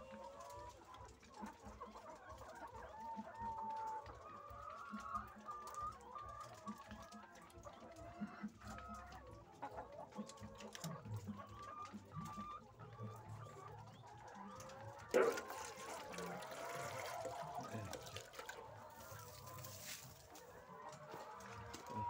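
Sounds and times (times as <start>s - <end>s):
hens clucking: 0.0s - 22.0s.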